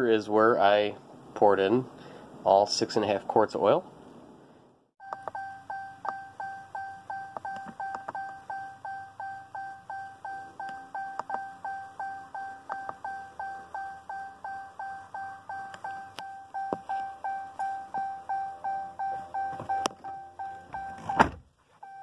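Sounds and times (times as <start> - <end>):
warning chime dings: 5.0 - 21.2.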